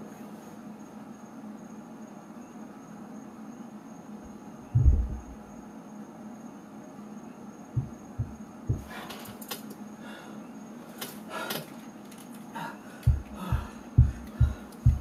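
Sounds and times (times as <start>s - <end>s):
soft low thumps: 4.7s - 5.5s, 7.8s - 8.9s, 13.1s - 15.0s.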